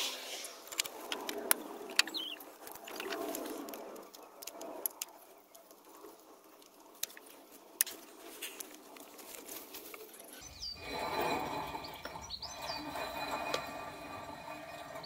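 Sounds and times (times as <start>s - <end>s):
bird chirp: 1.9s - 3.2s, 10.1s - 13.2s
soft rustle of movement: 2.4s - 12.0s.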